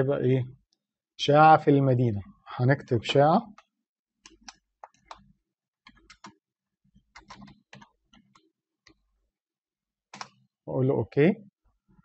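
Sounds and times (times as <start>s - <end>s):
computer keyboard typing: 3.5s - 6.4s, 7.0s - 9.0s, 10.1s - 10.4s.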